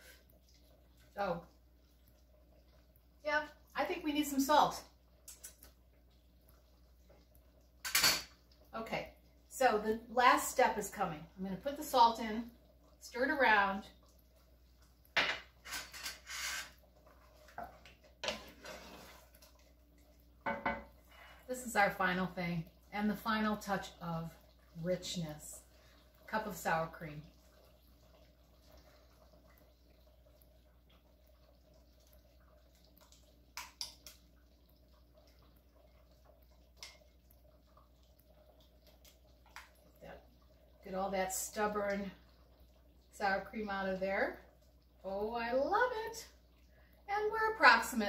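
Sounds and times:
wooden spoon scraping a pot: 0:15.6 - 0:19.5
soft taps and plops: 0:37.7 - 0:40.2.

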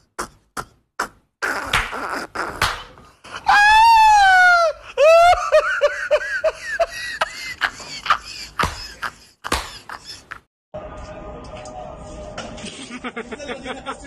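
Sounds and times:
hand claps: 0:01.6 - 0:03.0, 0:08.6 - 0:10.2
man laughing hysterically: 0:03.4 - 0:10.5, 0:12.7 - 0:14.0.

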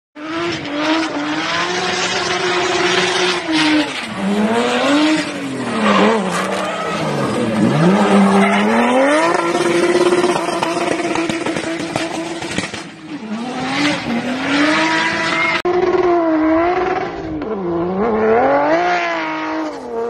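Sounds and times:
race car engine revving: 0:00.2 - 0:20.0
tyre squeal: 0:05.1 - 0:10.3.

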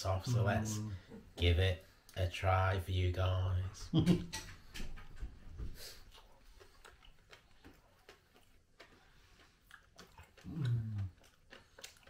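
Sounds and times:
quiet chewing with mouth clicks: 0:04.4 - 0:12.0
person humming low: 0:10.5 - 0:11.1.

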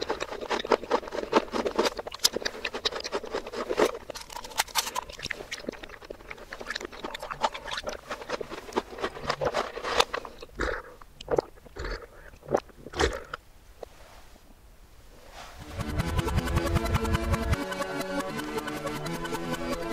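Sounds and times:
reversed chewing and crunching: 0:00.0 - 0:14.0
gulps of milk: 0:10.3 - 0:13.4.

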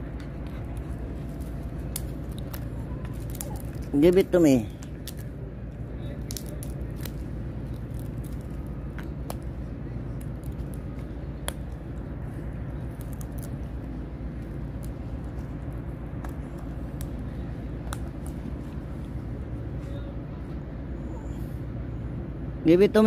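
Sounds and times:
dog gnawing wooden stick: 0:00.0 - 0:19.4
steady low rumble: 0:00.0 - 0:23.0
wood cracking: 0:00.4 - 0:05.3, 0:06.0 - 0:09.5, 0:12.6 - 0:18.8.

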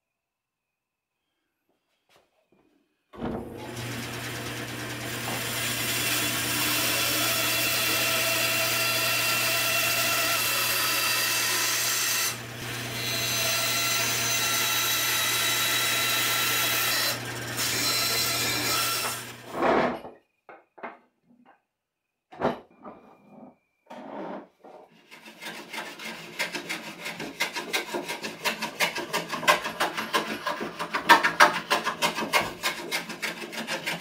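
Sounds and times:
bandsaw cutting wood: 0:03.4 - 0:19.6, 0:24.9 - 0:34.0.

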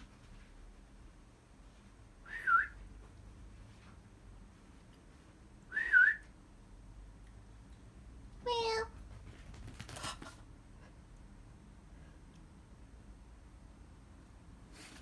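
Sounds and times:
person whistling: 0:02.3 - 0:02.8, 0:05.7 - 0:06.2.

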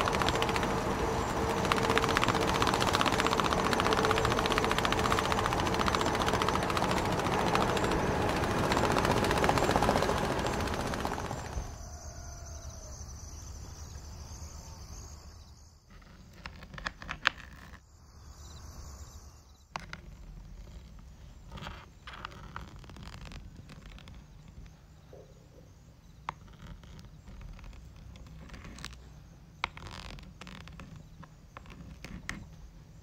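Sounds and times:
small electric motor and gears: 0:00.0 - 0:11.8.

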